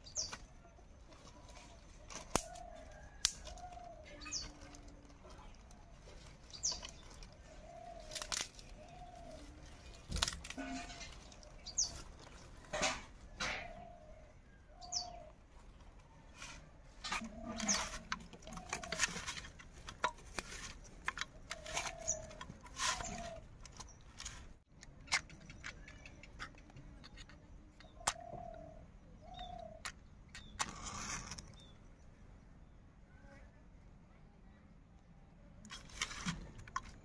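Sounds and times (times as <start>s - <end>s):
dove cooing: 1.3s - 15.3s, 17.0s - 19.5s, 21.3s - 23.5s, 27.9s - 29.9s
dry twigs snapping: 1.8s - 12.4s.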